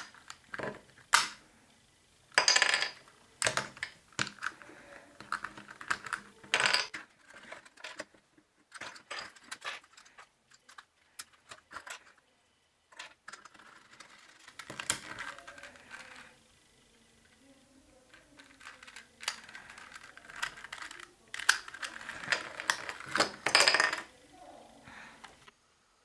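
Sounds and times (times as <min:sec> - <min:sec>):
plastic puzzle cube clicking: 0:00.0 - 0:01.4, 0:02.4 - 0:08.1, 0:13.0 - 0:16.4, 0:18.0 - 0:24.1.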